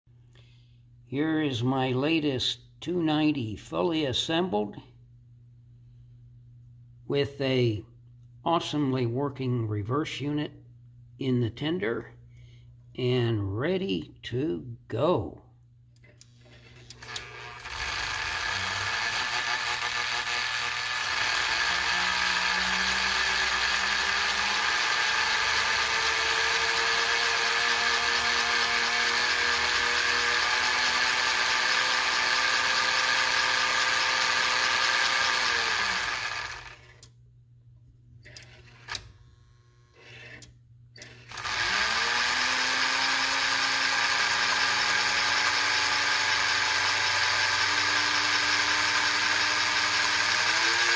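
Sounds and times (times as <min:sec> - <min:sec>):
electric motor whirring whine: 0:16.9 - 0:37.0, 0:41.0 - 0:50.9.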